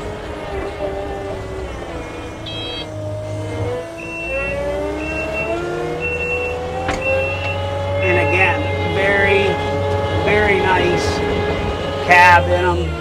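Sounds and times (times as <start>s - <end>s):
diesel engine running: 0.0s - 13.0s
short high beeps: 2.5s - 2.9s, 4.0s - 8.8s.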